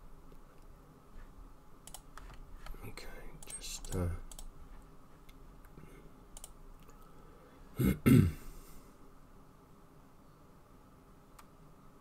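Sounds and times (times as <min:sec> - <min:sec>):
faint mouse clicks: 0:01.8 - 0:04.5, 0:05.2 - 0:07.1, 0:11.3 - 0:11.6
person clearing throat: 0:07.8 - 0:08.5.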